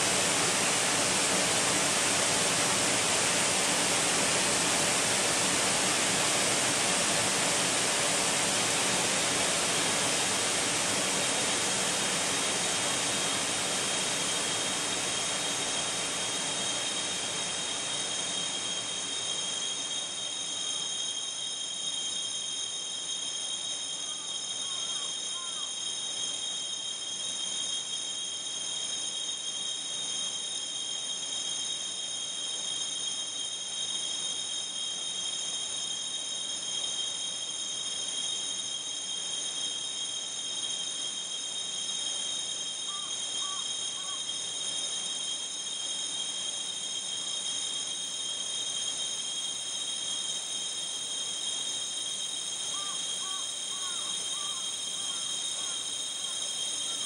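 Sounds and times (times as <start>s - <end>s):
filtered waterfall ringing: 0.0s - 21.0s, 36.6s - 57.0s
faint chirps: 14.2s - 57.0s.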